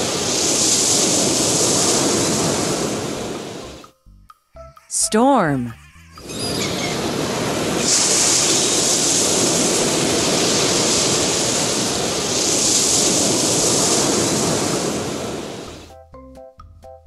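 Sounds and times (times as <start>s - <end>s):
waves breaking in rough sea: 0.0s - 3.8s, 6.2s - 15.9s.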